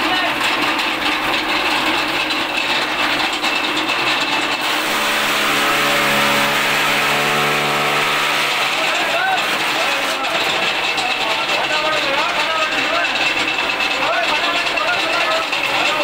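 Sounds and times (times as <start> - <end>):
chaff cutter blades whirring: 1.0 - 16.0
steady humming tone: 4.6 - 8.7.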